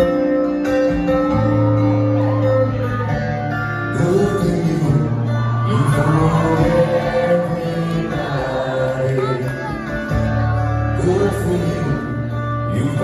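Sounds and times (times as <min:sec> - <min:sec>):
acoustic guitars playing: 0:00.0 - 0:13.0
man singing: 0:03.9 - 0:13.0.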